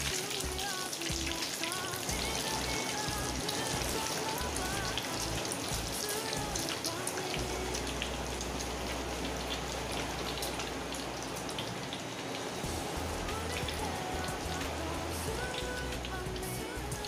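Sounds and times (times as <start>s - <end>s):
batter sizzling in hot oil: 0.0s - 17.0s.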